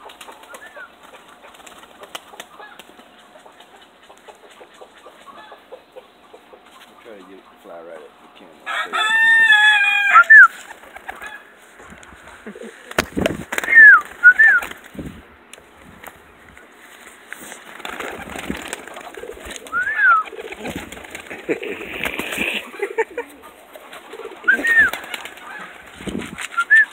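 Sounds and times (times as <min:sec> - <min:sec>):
pigeon wings flapping: 0:00.0 - 0:03.8, 0:10.5 - 0:12.1, 0:12.8 - 0:15.2, 0:17.3 - 0:26.9
pigeons cooing: 0:00.0 - 0:15.1, 0:17.7 - 0:26.9
long loud bird call: 0:09.0 - 0:10.6, 0:19.6 - 0:20.5, 0:24.2 - 0:25.9.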